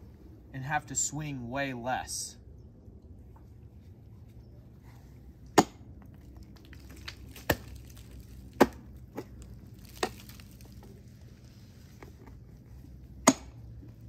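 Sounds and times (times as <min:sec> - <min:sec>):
ice axe striking ice: 0:05.6 - 0:05.8, 0:06.5 - 0:10.8, 0:13.2 - 0:13.6.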